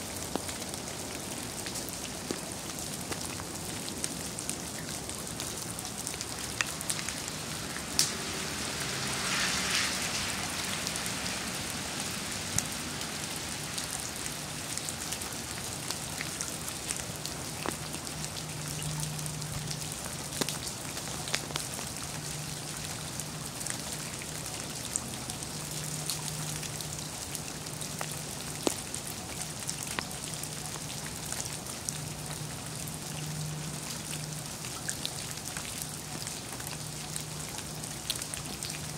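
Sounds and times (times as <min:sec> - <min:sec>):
drops ticking on leaves and pavement: 0:00.0 - 0:38.9
wet snow hissing: 0:07.3 - 0:13.8.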